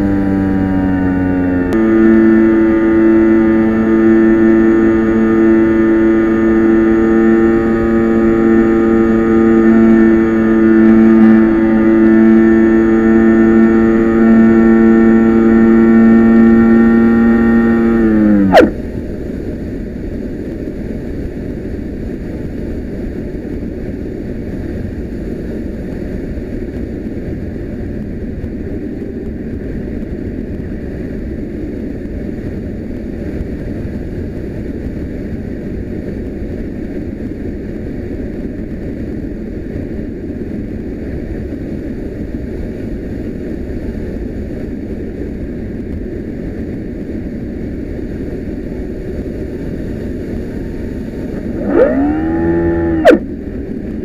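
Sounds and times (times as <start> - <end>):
electric motor and propeller whine: 0.0 - 19.4, 49.6 - 54.0.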